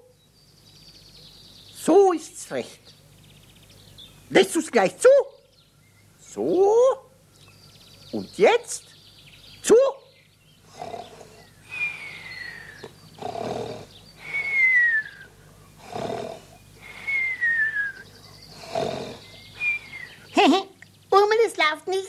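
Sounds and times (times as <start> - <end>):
cartoonish snoring: 10.7 - 11.5, 12.8 - 14.4, 15.8 - 17.0, 18.5 - 19.3.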